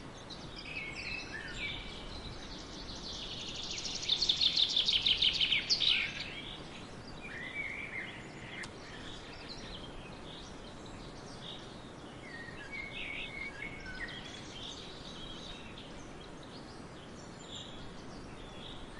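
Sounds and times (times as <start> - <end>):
wind through a field: 0.0 - 18.9.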